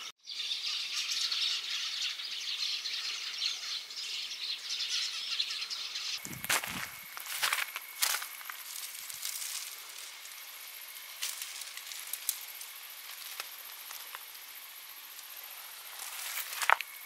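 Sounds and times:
rustling of leaves and cloth: 6.2 - 17.0.

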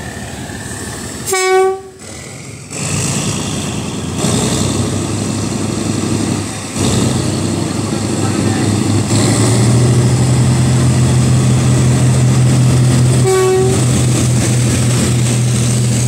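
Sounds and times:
locomotive engine running: 0.0 - 16.0
locomotive horn blast: 1.2 - 2.0, 12.7 - 14.2.

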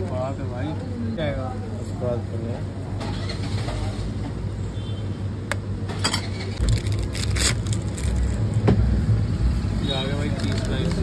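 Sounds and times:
low engine rumble: 5.4 - 11.0
plastic wrapper crinkling: 6.6 - 8.6, 10.2 - 11.0.

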